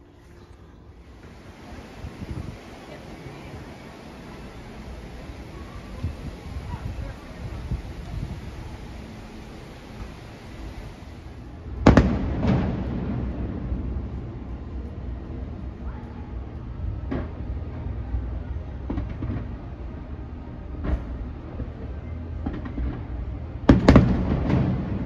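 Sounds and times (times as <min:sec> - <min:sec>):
low steady rumble: 0:00.0 - 0:18.9
distant fireworks bangs: 0:01.1 - 0:14.1, 0:22.4 - 0:25.0.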